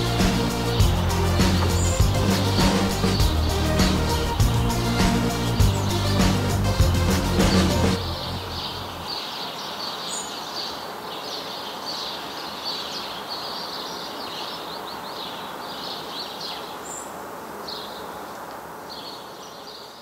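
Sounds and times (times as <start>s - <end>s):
distant outdoor background hiss: 0.0s - 20.0s
small birds chirping: 0.0s - 20.0s.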